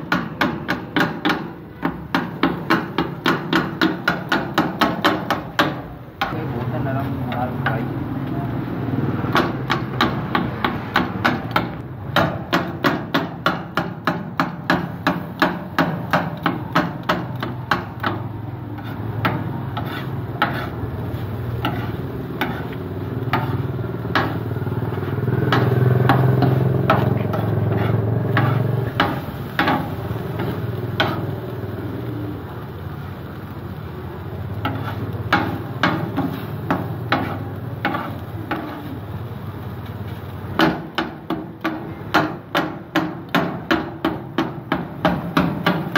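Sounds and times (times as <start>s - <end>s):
metal scraper clanking on griddle: 12.2s - 31.3s, 34.6s - 38.9s.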